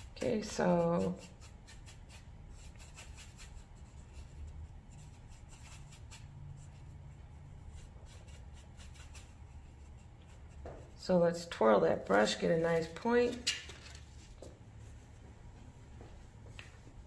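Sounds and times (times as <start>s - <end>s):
paintbrush scratching on palette: 0.0s - 11.1s.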